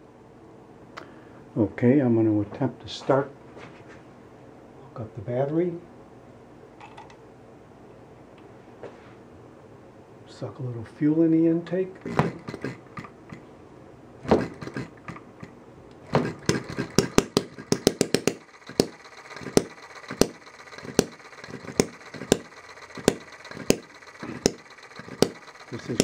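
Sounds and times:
light mechanical clatter: 0:11.8 - 0:13.5, 0:14.2 - 0:26.0
model engine popping: 0:12.0 - 0:13.4, 0:14.2 - 0:26.0.

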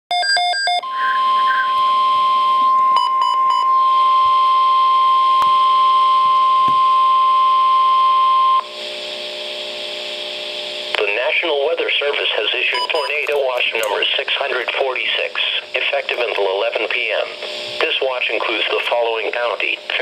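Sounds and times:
electronic beeps: 0:00.1 - 0:03.9, 0:12.7 - 0:14.0
weather radio alarm tone: 0:00.1 - 0:08.6, 0:12.6 - 0:14.1
radio hiss: 0:08.6 - 0:20.0.

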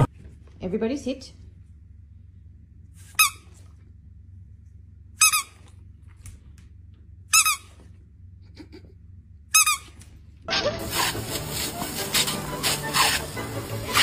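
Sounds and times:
squeaky dog toy squeaks: 0:03.1 - 0:03.6, 0:05.2 - 0:05.6, 0:07.3 - 0:07.8, 0:09.5 - 0:11.4.

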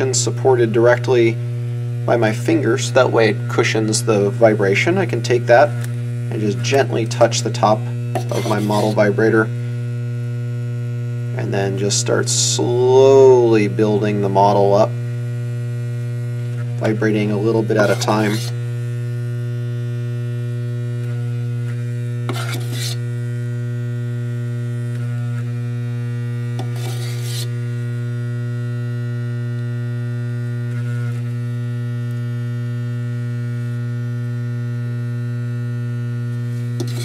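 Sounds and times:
vibrator electric buzz: 0:00.0 - 0:37.0
spatula scraping bowl: 0:06.4 - 0:09.4, 0:16.8 - 0:18.6, 0:22.2 - 0:23.1, 0:26.6 - 0:27.6, 0:36.7 - 0:37.0.

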